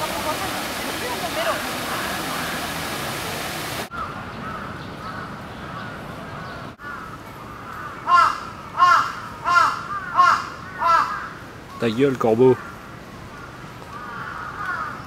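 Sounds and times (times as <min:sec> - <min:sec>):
fountain water rushing: 0:00.0 - 0:03.9
crows cawing: 0:03.9 - 0:06.0, 0:06.8 - 0:11.5, 0:12.5 - 0:15.0.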